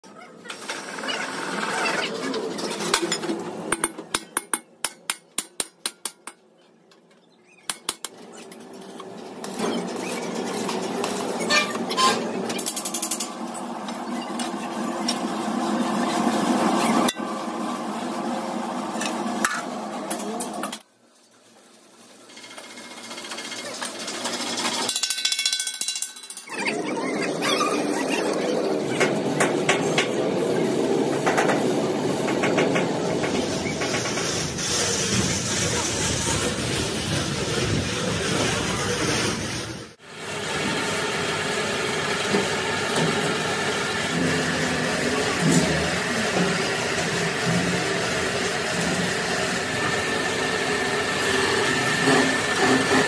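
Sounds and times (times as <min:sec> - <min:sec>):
steady machine noise: 0:09.2 - 0:20.8, 0:22.4 - 0:53.0.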